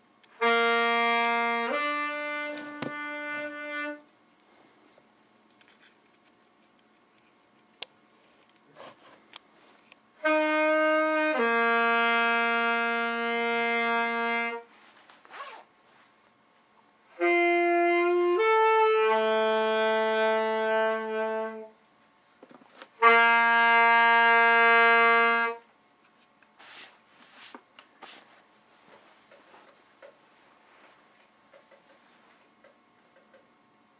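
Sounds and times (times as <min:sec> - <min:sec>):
saxophone long held notes: 0:00.2 - 0:04.2, 0:10.2 - 0:15.6, 0:17.1 - 0:21.8, 0:23.0 - 0:25.7.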